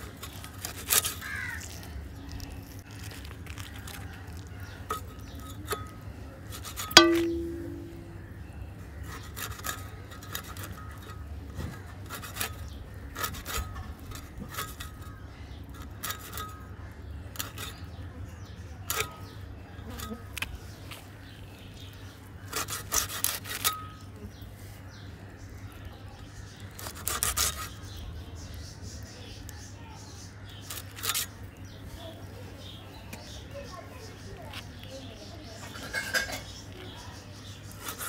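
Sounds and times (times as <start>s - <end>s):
fish scraped against metal blade: 12.0s - 15.1s, 22.5s - 24.0s, 26.8s - 27.8s, 37.7s - 38.0s.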